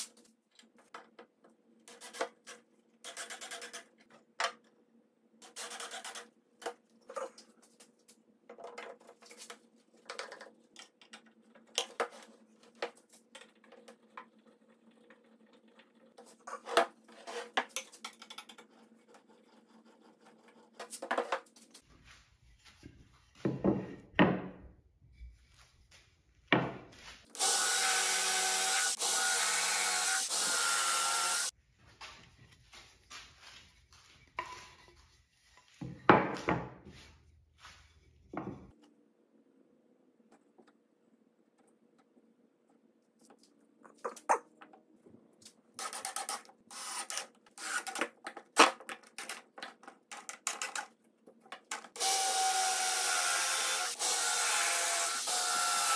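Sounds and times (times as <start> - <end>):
power saw cutting wood: 27.3 - 31.5, 52.0 - 55.9.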